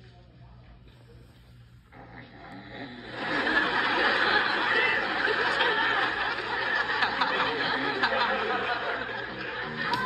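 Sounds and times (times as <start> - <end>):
studio audience laughing: 3.0 - 10.0.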